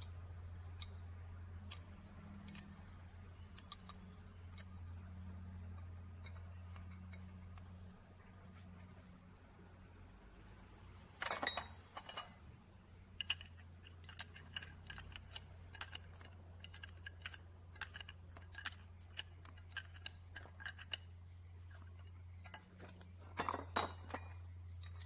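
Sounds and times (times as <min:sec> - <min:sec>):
metallic clicks of tightening: 0:01.6 - 0:04.8, 0:13.1 - 0:25.0
wrenches clinking on metal: 0:11.2 - 0:12.5, 0:13.2 - 0:21.1, 0:21.7 - 0:25.0.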